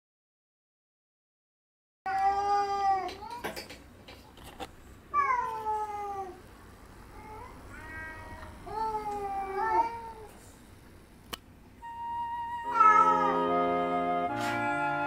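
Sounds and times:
cat yowling: 7.2s - 10.3s, 12.6s - 13.6s.

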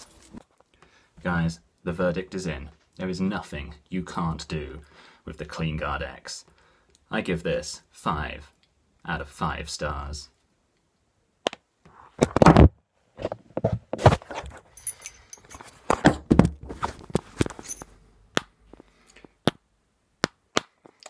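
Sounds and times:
knocks and scrapes: 11.9s - 17.9s.

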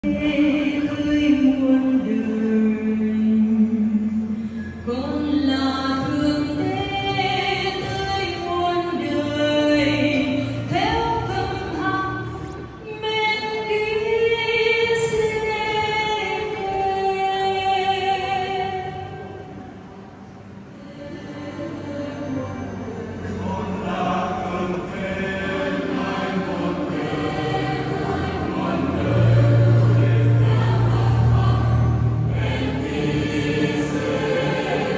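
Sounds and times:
choir singing a slow hymn: 20.8s - 34.9s.

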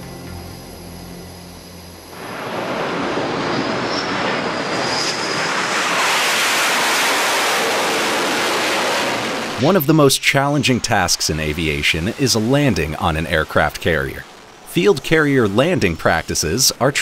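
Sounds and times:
jet engine roar: 0.0s - 17.0s.

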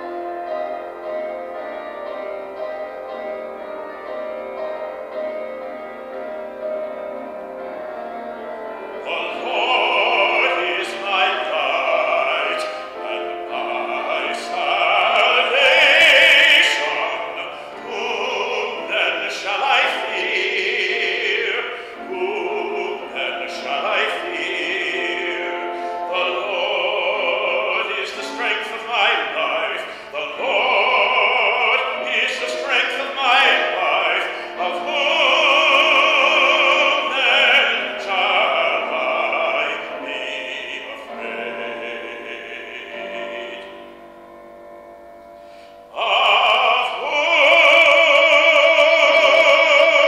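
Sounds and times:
instrumental accompaniment: 0.0s - 50.0s
man singing: 9.0s - 44.2s, 45.9s - 50.0s.

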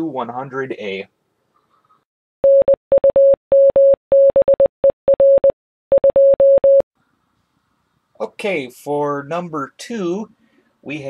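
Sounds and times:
morse code beeps: 2.4s - 6.8s.

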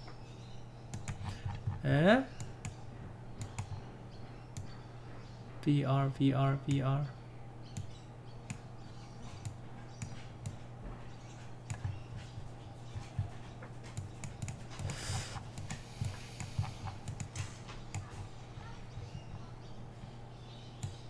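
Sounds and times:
faint electrical hum: 0.0s - 21.0s
computer mouse clicking: 0.9s - 2.8s, 3.4s - 3.8s, 7.7s - 8.6s, 9.3s - 10.6s, 11.2s - 12.3s, 13.9s - 18.2s.

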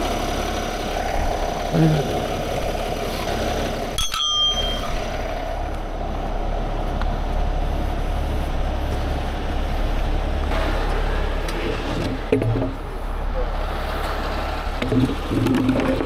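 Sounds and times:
diesel truck engine idling: 0.0s - 16.0s
sharp metallic clink: 4.0s - 5.1s.

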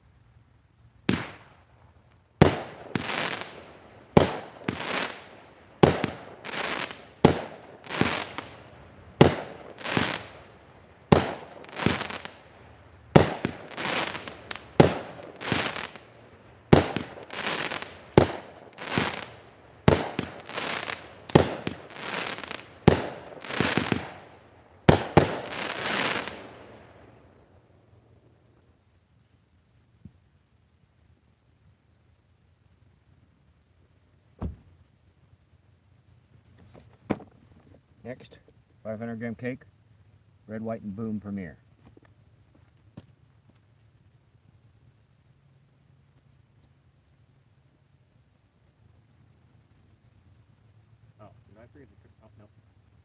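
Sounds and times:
firework launch cracks: 1.0s - 1.8s, 2.4s - 12.5s, 13.1s - 27.3s
firework bursts: 1.0s - 27.4s.

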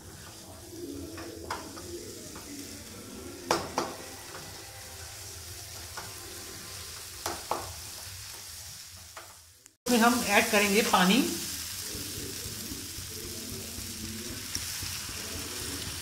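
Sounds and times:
spatula stirring in pan: 0.0s - 9.4s
masala sizzling in oil: 0.0s - 16.0s.

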